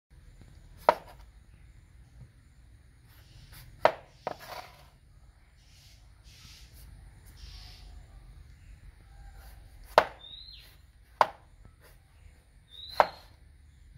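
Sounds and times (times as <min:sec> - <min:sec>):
knife slicing and scraping: 0:03.1 - 0:05.0
knife knocking on chopping board: 0:09.9 - 0:10.2.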